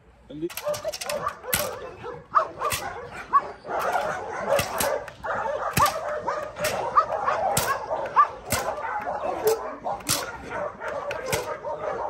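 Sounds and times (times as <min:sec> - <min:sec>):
dog barking aggressively: 0:00.5 - 0:12.0.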